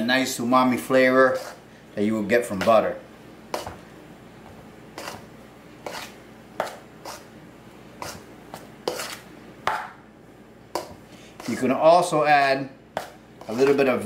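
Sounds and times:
metal spoon scraping steel bowl: 1.3 - 1.6, 5.0 - 5.2, 5.8 - 6.2, 8.9 - 9.2.

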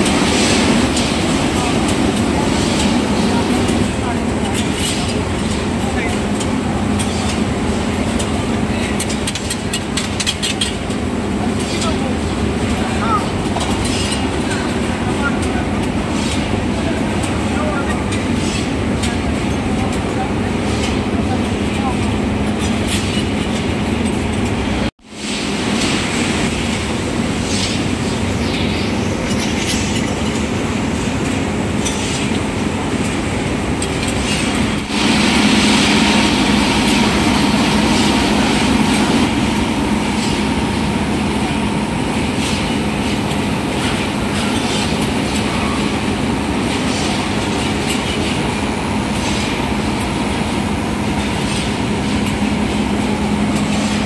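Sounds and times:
steady machine hum: 0.0 - 9.1, 34.6 - 54.0
machine rumble and clatter: 0.0 - 24.9, 25.5 - 54.0.

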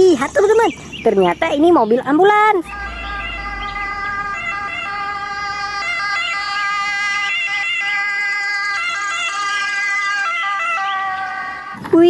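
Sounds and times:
ambulance siren wailing: 2.6 - 12.0.

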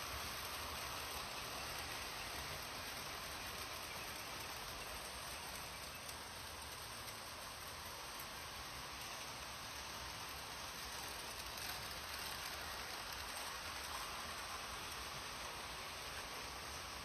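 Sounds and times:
model train rolling on metal track: 0.0 - 17.0.

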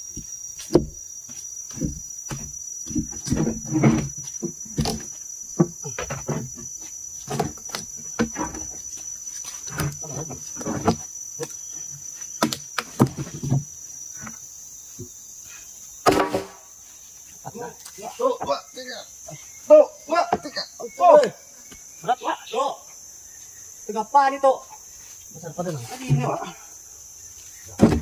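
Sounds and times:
knocks and thumps: 0.0 - 1.0, 1.7 - 8.9, 9.7 - 11.5, 12.4 - 14.4, 16.0 - 16.6, 20.2 - 20.6, 27.7 - 28.0
insects droning: 0.0 - 28.0.

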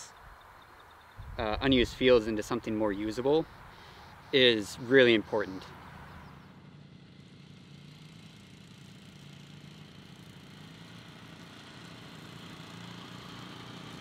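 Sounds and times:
quad bike engine running: 3.7 - 14.0.

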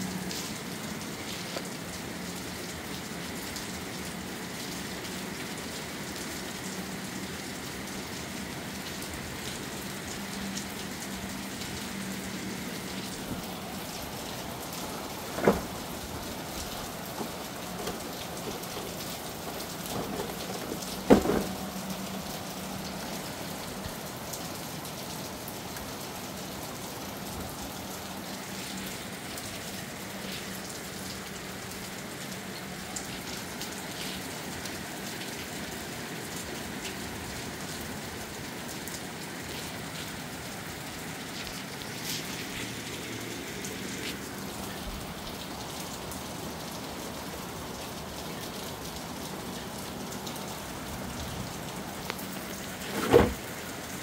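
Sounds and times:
rain pattering: 0.0 - 54.0
sharp knocks: 21.0 - 21.6.

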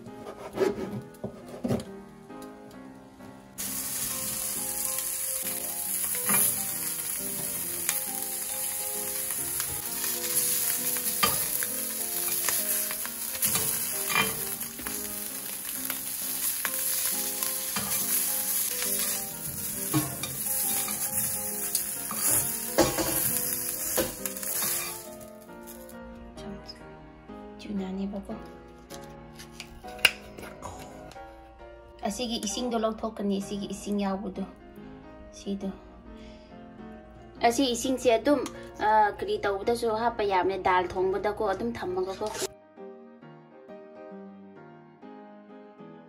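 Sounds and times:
soft background music: 0.0 - 46.0
ham sizzling in hot oil: 3.6 - 26.0.

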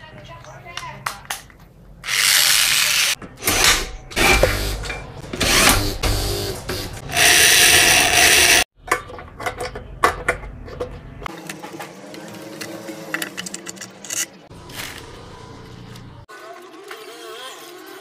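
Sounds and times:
electric drill whining: 5.4 - 8.7
plastic covers clicking and knocking: 8.8 - 11.2.

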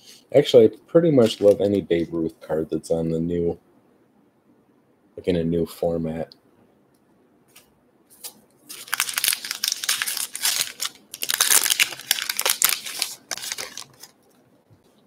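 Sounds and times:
card wrapper tearing and crinkling: 1.2 - 1.8, 8.7 - 14.2.

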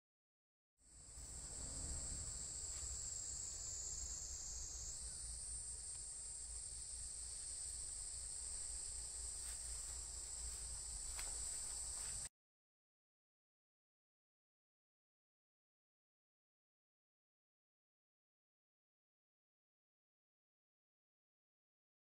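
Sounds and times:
insects chirring: 0.8 - 12.3
faint low rumble: 1.0 - 5.8.

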